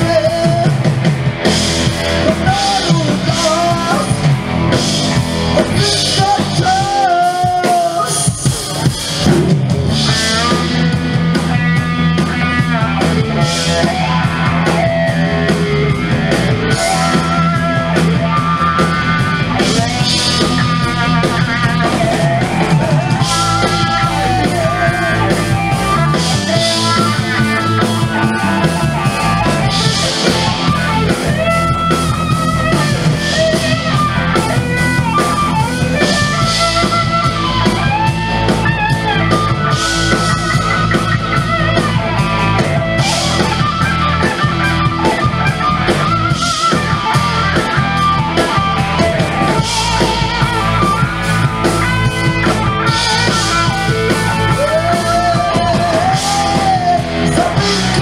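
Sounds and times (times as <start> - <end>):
blues-rock band playing: 0.0 - 58.0
electric guitar lead line: 0.0 - 58.0.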